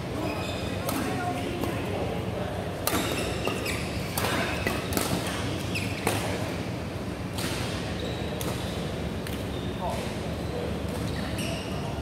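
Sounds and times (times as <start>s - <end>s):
shoe squeaks on court floor: 0.2s - 0.9s, 3.0s - 4.6s, 7.9s - 8.7s, 9.5s - 11.9s
racket hitting shuttlecock: 2.8s - 5.4s.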